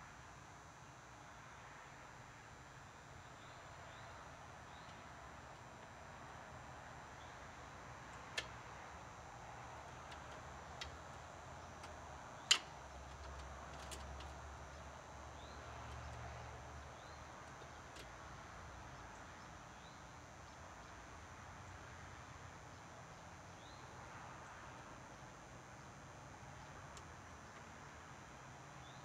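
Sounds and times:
faint steady hiss: 0:00.0 - 0:29.0
faint bird chirps: 0:22.7 - 0:24.0.

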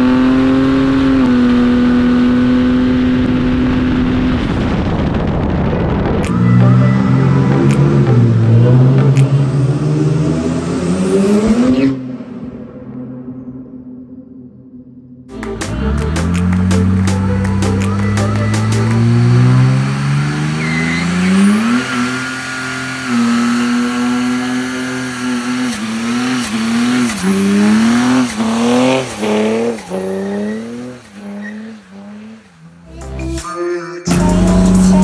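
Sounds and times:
diesel engine revving hard: 0:00.0 - 0:04.8, 0:06.3 - 0:12.0, 0:15.4 - 0:32.8
tyre squeal: 0:20.4 - 0:22.5.

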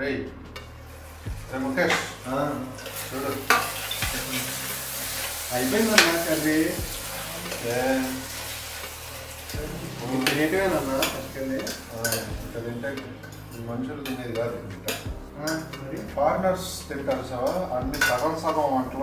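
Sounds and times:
food sizzling in a pan: 0:00.6 - 0:19.0
spoon scraping metal pan: 0:01.8 - 0:12.4.

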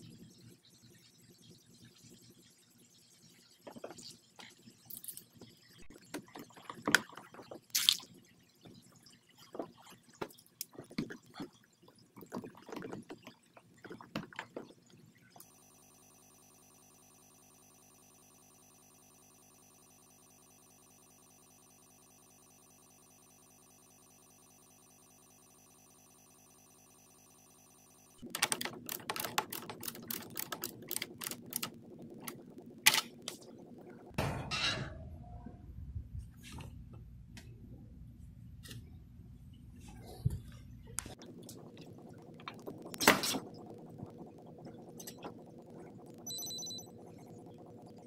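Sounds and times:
steady electronic ringing tone: 0:15.4 - 0:34.2, 0:41.1 - 0:48.0.

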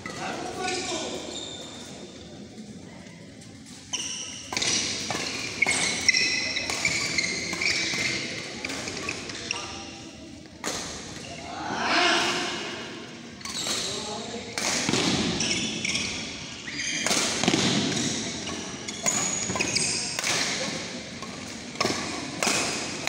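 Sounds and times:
shoes squeaking on court: 0:00.6 - 0:02.0, 0:03.5 - 0:09.9, 0:13.4 - 0:14.1, 0:14.9 - 0:22.9
racket striking shuttlecock: 0:17.0 - 0:23.0.

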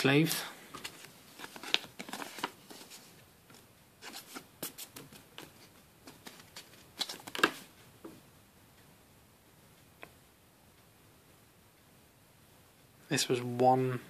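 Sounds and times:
card sliding into plastic sleeve: 0:00.8 - 0:03.0.

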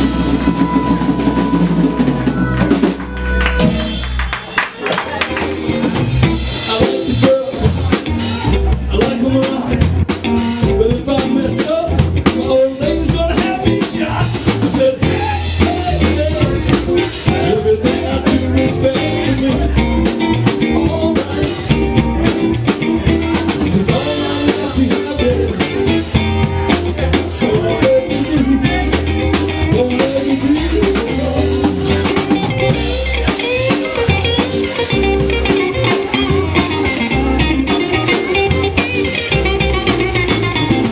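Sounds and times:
drum kit beat: 0:00.0 - 0:40.9
electric guitars: 0:00.0 - 0:40.9
person singing: 0:06.5 - 0:09.9, 0:10.6 - 0:40.9.

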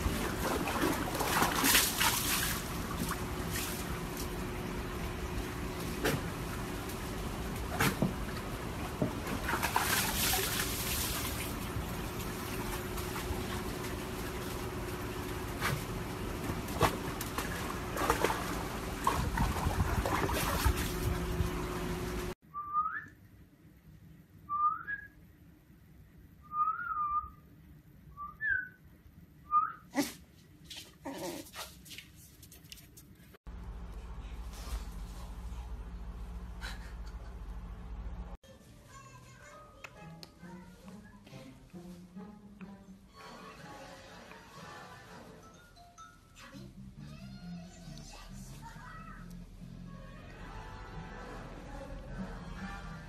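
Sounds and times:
dog splashing in water: 0:00.0 - 0:04.2, 0:09.1 - 0:21.2.

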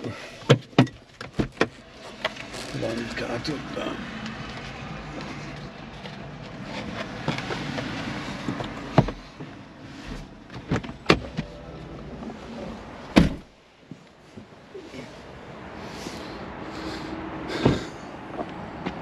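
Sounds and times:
car door shutting: 0:10.0 - 0:13.5.

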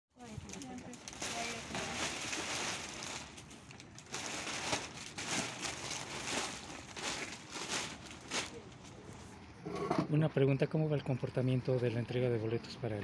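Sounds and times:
plastic bag rustling: 0:00.2 - 0:09.2.

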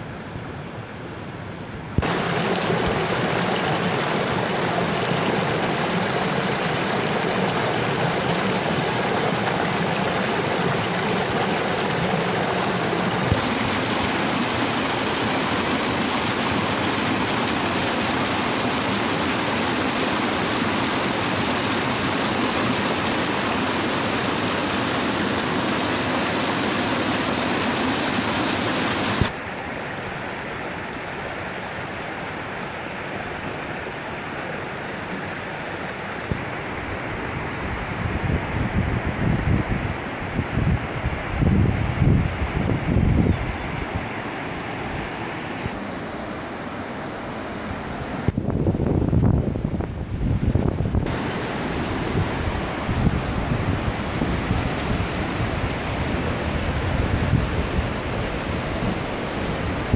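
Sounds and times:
water rushing down rocky cascade: 0:02.0 - 0:36.4, 0:51.1 - 0:59.9.

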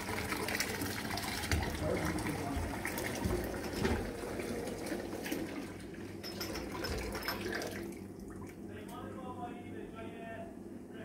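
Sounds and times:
running water: 0:00.0 - 0:08.6.

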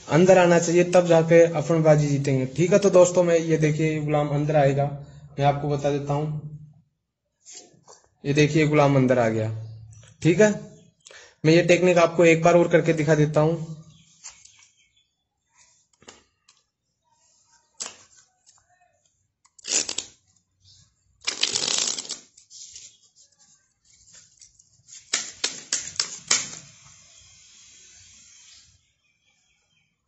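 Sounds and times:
cards rustling shuffle: 0:21.2 - 0:23.2, 0:23.8 - 0:26.7
sharp card snaps and taps: 0:25.0 - 0:26.6.

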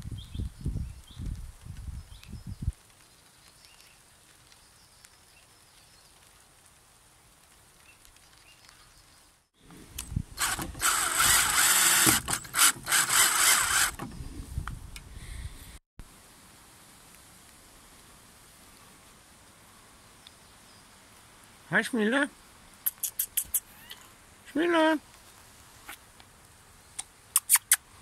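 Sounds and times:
drill driving screw into wood: 0:10.4 - 0:14.1.

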